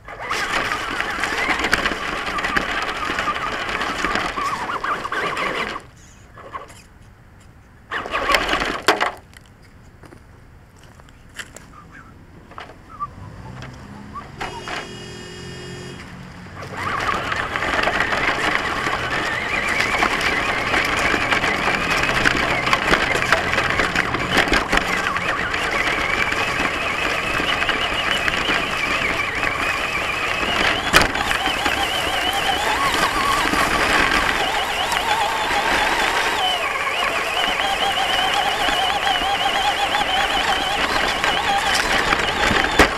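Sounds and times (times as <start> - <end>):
rc truck motor whine: 0.0 - 6.8, 14.3 - 42.9
truck rattling on rough ground: 0.0 - 6.8, 7.9 - 10.2, 12.4 - 42.9
brief tone: 14.2 - 16.0.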